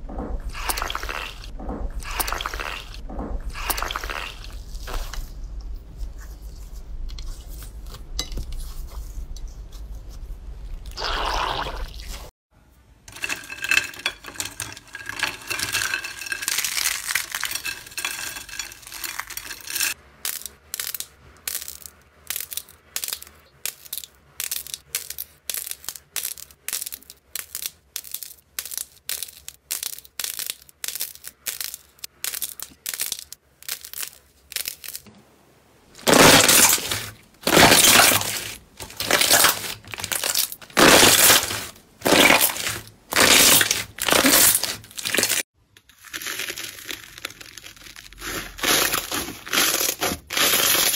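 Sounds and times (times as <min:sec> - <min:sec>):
wet slime squelches: 0:00.0 - 0:12.3
fine crackling of slime: 0:36.0 - 0:50.9.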